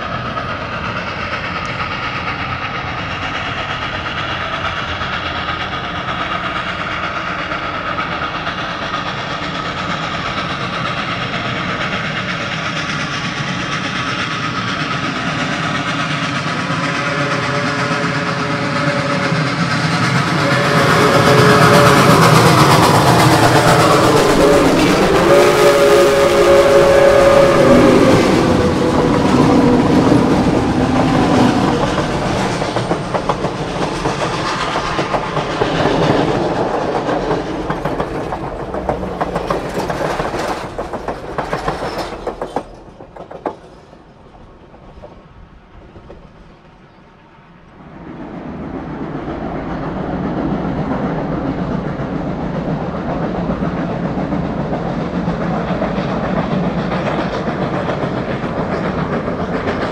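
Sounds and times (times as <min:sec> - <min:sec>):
train wheels clicking over rail joints: 0:00.0 - 0:46.9, 0:49.6 - 0:59.9
steady rumble: 0:18.5 - 0:43.4.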